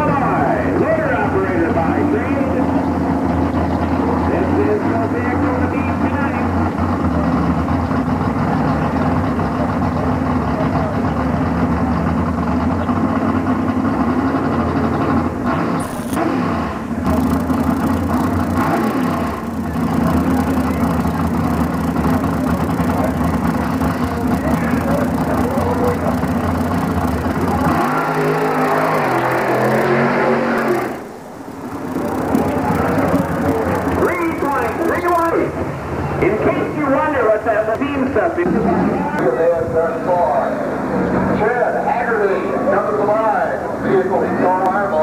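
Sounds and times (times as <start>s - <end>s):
truck engine running loudly: 0.0s - 37.1s.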